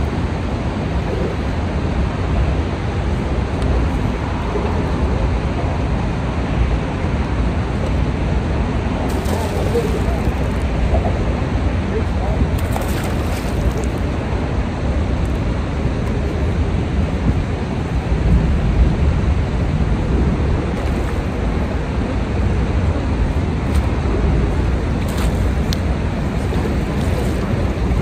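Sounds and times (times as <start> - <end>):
fast river current: 0.0 - 18.3, 19.0 - 28.0
wind buffeting microphone: 0.0 - 28.0
fish splashing at surface: 9.1 - 10.6, 12.6 - 14.0.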